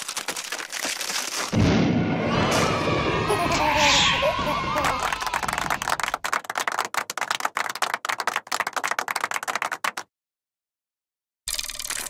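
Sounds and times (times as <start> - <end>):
fast irregular cartoon tapping: 5.1 - 10.1.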